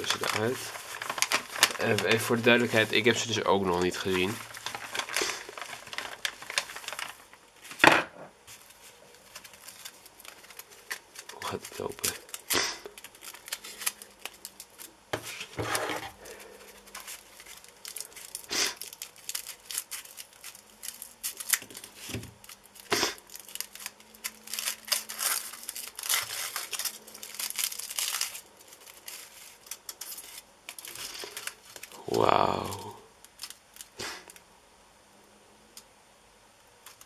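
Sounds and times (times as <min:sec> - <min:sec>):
foil crinkling and tearing: 0:00.0 - 0:07.8, 0:08.5 - 0:34.4
scissors snipping foil: 0:09.3 - 0:14.9, 0:16.2 - 0:34.4.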